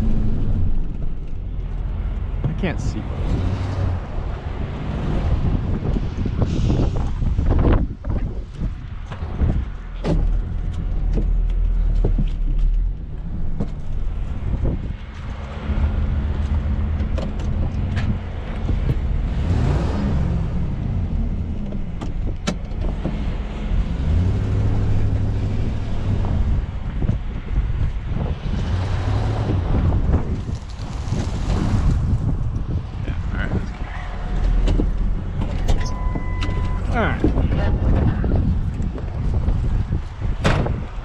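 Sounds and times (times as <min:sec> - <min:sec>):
sharp clicks and knocks: 0:16.4 - 0:19.1, 0:21.6 - 0:23.3, 0:34.4 - 0:37.4.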